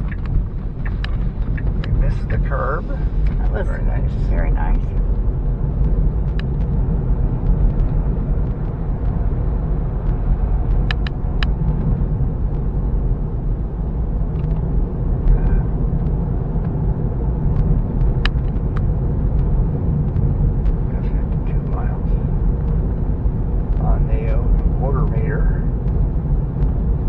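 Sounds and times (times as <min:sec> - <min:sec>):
road and tyre rumble in car: 0:00.0 - 0:27.0
faint sharp clicks: 0:10.0 - 0:11.8.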